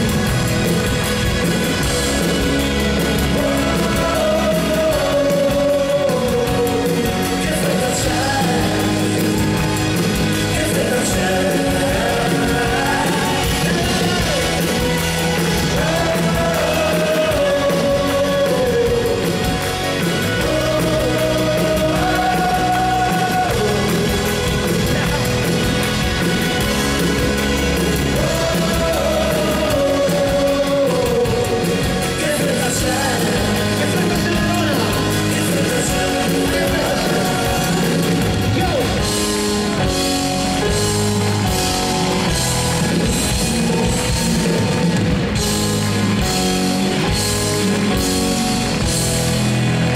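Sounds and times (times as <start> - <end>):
drums: 0.0 - 49.9
live rock band playing: 0.0 - 49.9
person singing: 2.2 - 25.4, 27.5 - 42.3.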